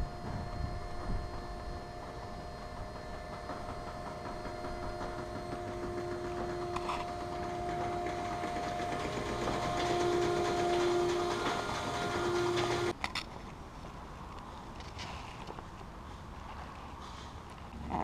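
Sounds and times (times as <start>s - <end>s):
hangar door motor humming: 0.0s - 13.0s.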